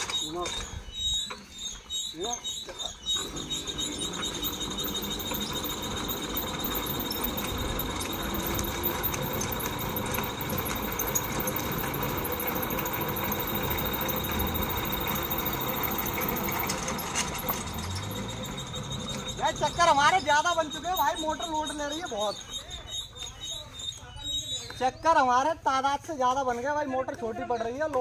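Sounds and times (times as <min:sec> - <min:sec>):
electric motor whining: 0:03.1 - 0:21.0
fast even ticking: 0:04.4 - 0:23.4.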